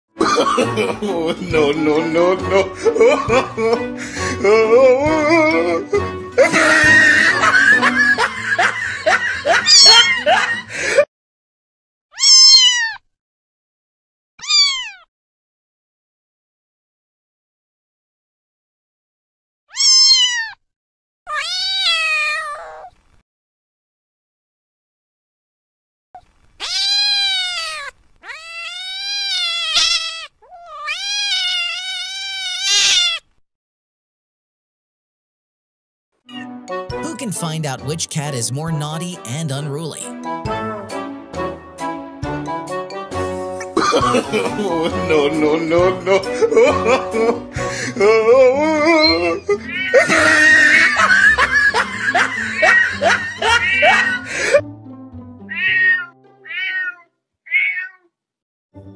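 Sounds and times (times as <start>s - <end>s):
background music: 0.2s - 11.0s, 36.3s - 56.5s
cat meowing: 9.7s - 10.0s, 12.2s - 13.0s, 14.4s - 15.1s, 19.7s - 20.6s, 21.3s - 22.9s, 26.6s - 33.3s, 49.6s - 51.0s, 55.5s - 58.1s.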